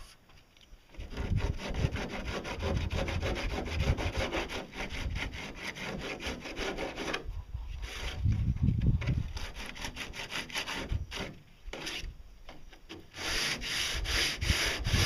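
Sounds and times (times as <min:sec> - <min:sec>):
sanding block rasping on hull: 0:00.9 - 0:08.3, 0:09.2 - 0:12.1, 0:13.1 - 0:15.0.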